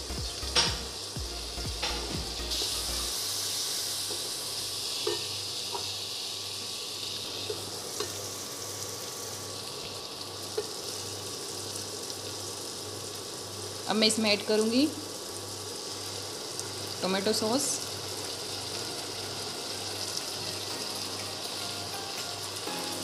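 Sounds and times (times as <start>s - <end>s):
vegetables sizzling in hot oil: 0.0s - 23.0s.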